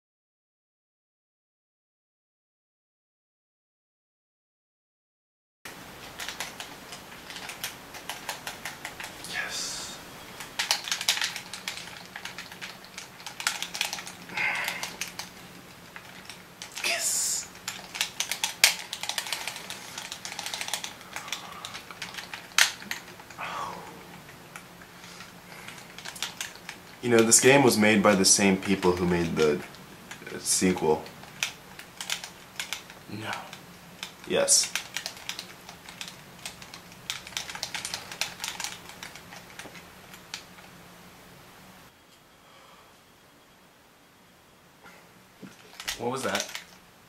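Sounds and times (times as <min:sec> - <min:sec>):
game controller buttons clicking: 0:06.1 - 0:09.1, 0:10.5 - 0:15.3, 0:17.6 - 0:23.3, 0:31.0 - 0:33.0, 0:34.0 - 0:40.4.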